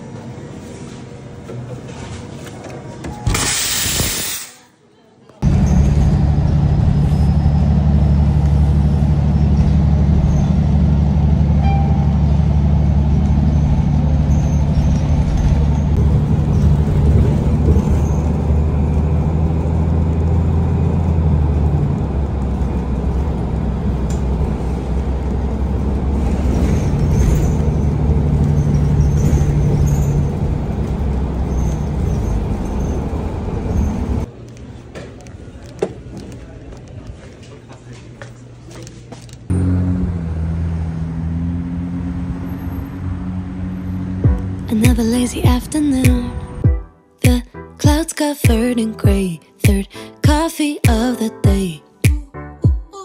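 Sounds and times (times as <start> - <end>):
bus engine drone: 0.0 - 4.6, 5.4 - 47.4
road noise: 5.4 - 46.7.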